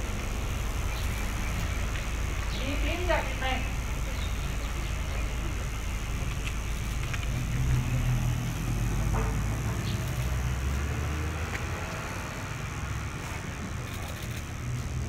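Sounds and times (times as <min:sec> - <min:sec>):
low engine rumble: 0:00.0 - 0:15.0
small clicks: 0:13.8 - 0:14.8.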